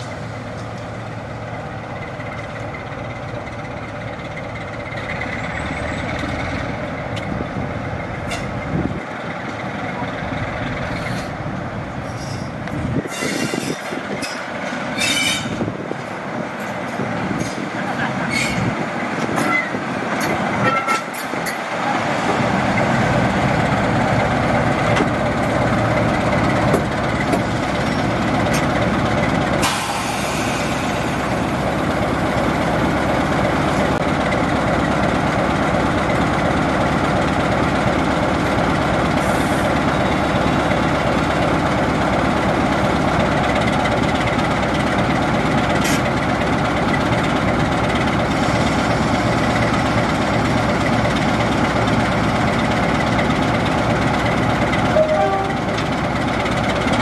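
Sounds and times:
diesel locomotive engine: 0:00.0 - 0:57.0
air hiss: 0:29.6 - 0:31.6.

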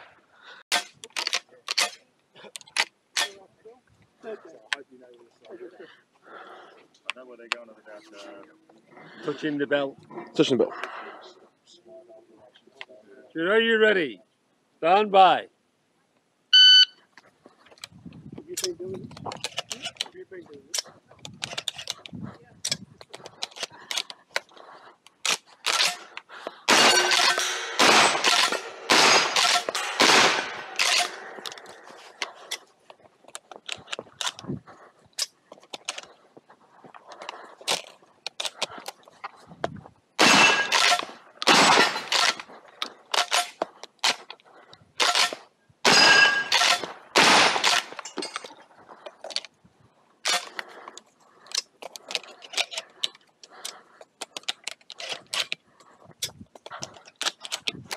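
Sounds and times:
metallic clicks of gun reloading: 0:00.7 - 0:02.0, 0:18.6 - 0:20.1, 0:20.7 - 0:22.0, 0:25.2 - 0:31.7, 0:40.2 - 0:44.4, 0:45.0 - 0:48.5
shotgun shots: 0:26.7 - 0:31.4, 0:40.2 - 0:42.4, 0:45.0 - 0:48.0.

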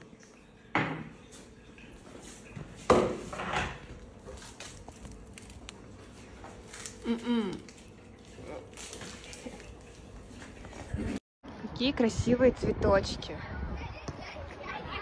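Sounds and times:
dishes and utensils clattering: 0:02.6 - 0:04.0.

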